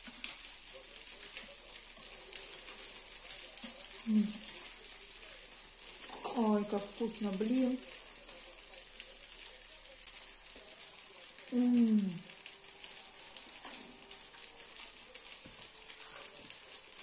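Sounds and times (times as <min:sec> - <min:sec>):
food sizzling in a pan: 0:00.0 - 0:17.0
woman humming: 0:11.5 - 0:12.2.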